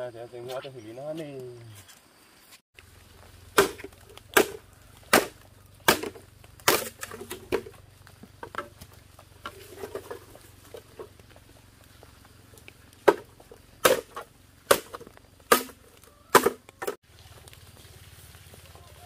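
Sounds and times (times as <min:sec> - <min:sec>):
bamboo poles rattling: 0:02.9 - 0:19.0
machete chopping bamboo: 0:03.5 - 0:07.7, 0:13.0 - 0:17.0.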